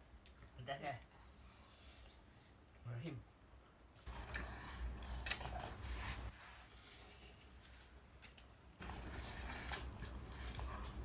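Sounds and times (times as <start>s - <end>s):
noodles being slurped and chewed: 8.8s - 11.0s.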